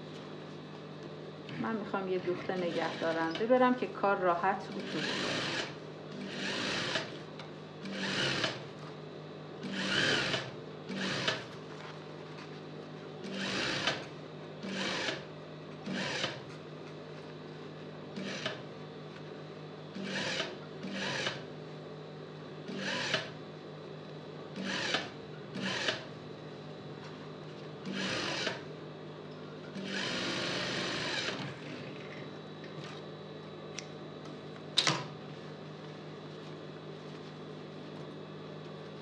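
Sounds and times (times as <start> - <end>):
sewing machine motor humming: 2.5 - 3.6, 4.7 - 7.2, 7.8 - 8.6, 9.6 - 11.4, 13.2 - 15.2, 15.8 - 16.4, 18.2 - 18.6, 20.0 - 21.4, 22.7 - 23.4, 24.6 - 26.1, 27.8 - 28.6, 29.8 - 32.2
sewing machine stitching: 4.7 - 7.1, 7.9 - 8.6, 9.6 - 11.4, 13.3 - 14.0, 14.6 - 15.2, 15.9 - 16.4, 18.2 - 18.6, 20.0 - 21.4, 22.7 - 23.3, 24.6 - 26.1, 27.9 - 28.6, 29.8 - 31.9.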